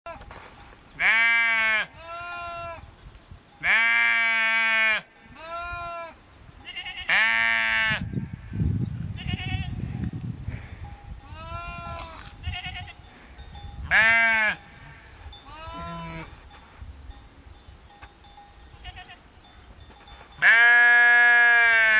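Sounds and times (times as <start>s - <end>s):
sheep bleating: 1.0s - 2.7s, 11.4s - 13.0s, 15.5s - 16.3s, 18.8s - 19.2s, 20.4s - 21.9s.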